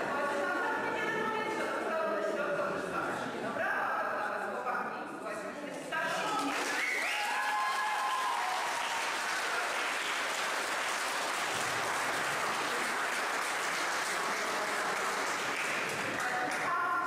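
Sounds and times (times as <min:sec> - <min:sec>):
audience clapping: 0:06.0 - 0:16.8.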